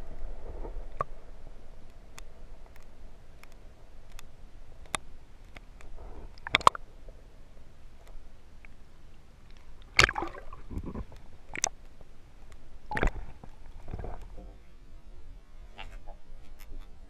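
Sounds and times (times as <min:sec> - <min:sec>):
muffled underwater sloshing: 0:08.9 - 0:17.0
sharp water sounds: 0:09.4 - 0:11.8, 0:12.8 - 0:14.3.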